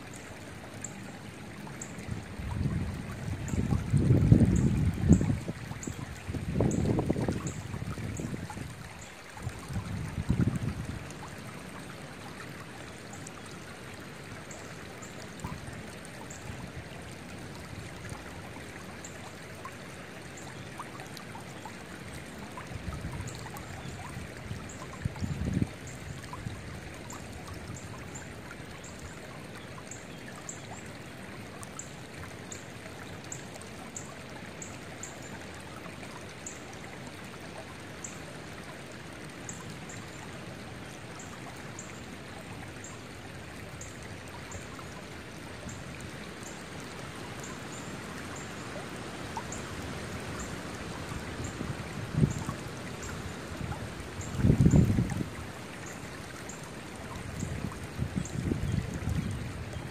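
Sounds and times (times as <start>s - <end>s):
creek flowing over stones: 0.0s - 59.9s
wind buffeting microphone: 2.4s - 5.6s, 6.2s - 8.8s, 9.4s - 11.0s, 53.6s - 55.4s, 57.4s - 59.9s.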